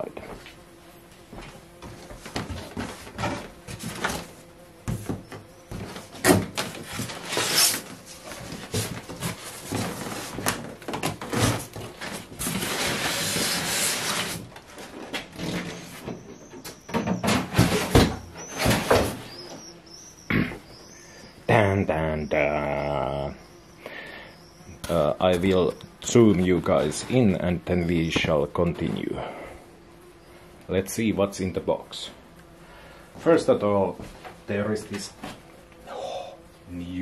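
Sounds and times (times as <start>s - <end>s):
cardboard and foam rustling: 1.4s - 16.1s.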